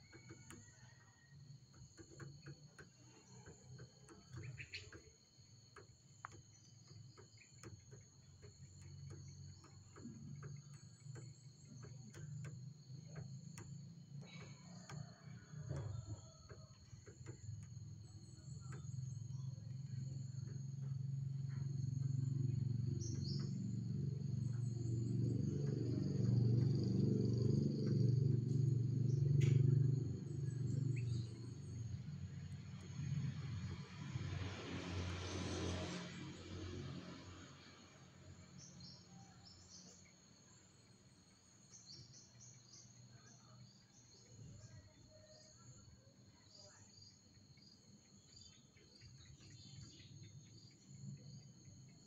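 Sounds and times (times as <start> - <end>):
faint low hum: 0.0 - 52.0
insects trilling: 0.0 - 52.0
low rumble: 17.4 - 34.6.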